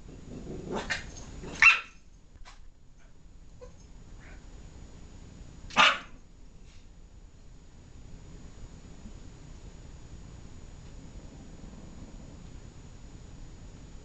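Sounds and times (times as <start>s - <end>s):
dog barking: 1.6s - 2.0s, 5.7s - 6.2s.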